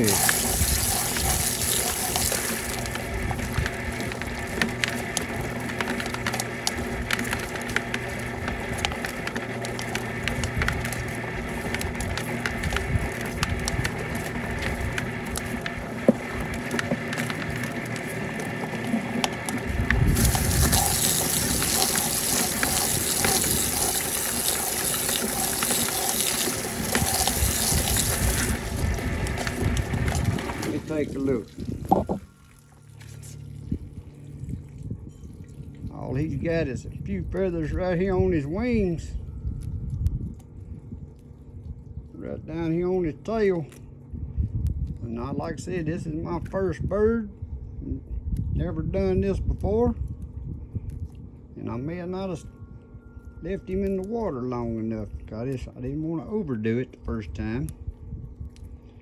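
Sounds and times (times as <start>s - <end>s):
hose spraying water into bucket: 0.0s - 34.2s
motor humming: 0.0s - 45.9s.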